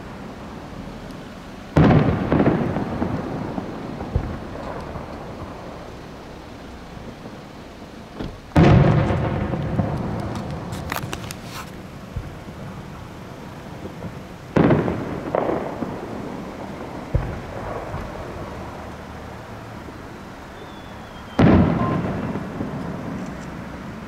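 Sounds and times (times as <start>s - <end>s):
fireworks booming: 0.0s - 24.0s.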